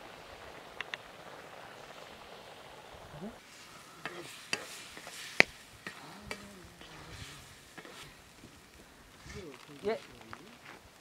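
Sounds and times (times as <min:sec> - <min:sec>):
faint sizzling: 0:00.0 - 0:11.0
spatula scraping pan: 0:03.5 - 0:08.2.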